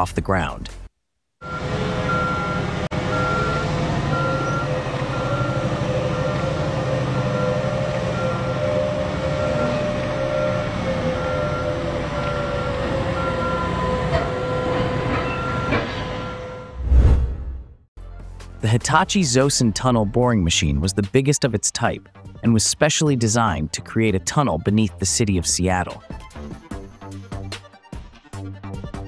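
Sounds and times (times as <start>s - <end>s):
diesel engine rumble with whine: 1.4s - 15.8s.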